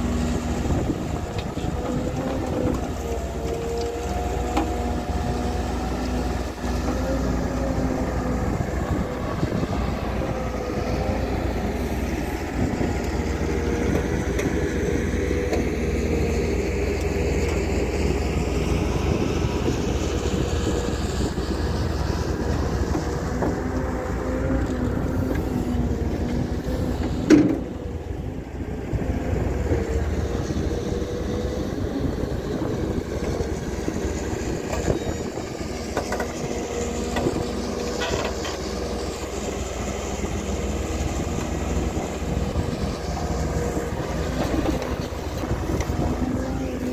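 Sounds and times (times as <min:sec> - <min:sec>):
vehicle engine droning: 0:00.0 - 0:46.9.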